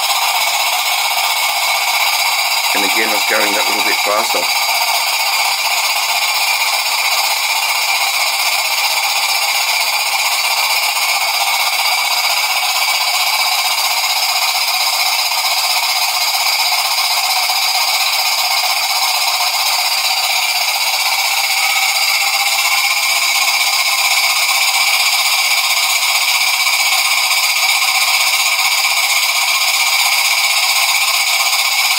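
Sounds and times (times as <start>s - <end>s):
model steam engine running: 0.0s - 31.9s.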